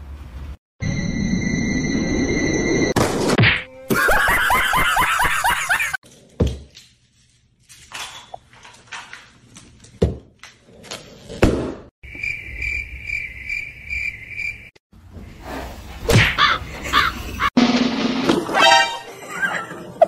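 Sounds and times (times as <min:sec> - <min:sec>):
cricket chirping: 0:12.0 - 0:14.7.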